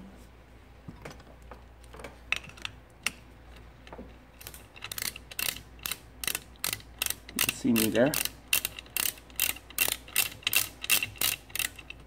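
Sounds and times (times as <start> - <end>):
ratchet wrench clicking: 4.4 - 12.0.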